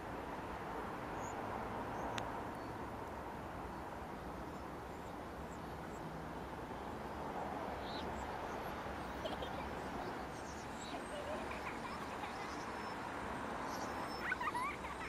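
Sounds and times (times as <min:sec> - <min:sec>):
faint bird chirps: 0:07.8 - 0:15.0.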